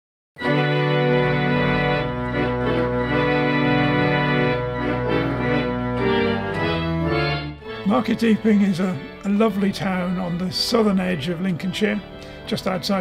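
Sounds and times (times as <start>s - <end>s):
pipe organ chords: 0.4s - 13.0s.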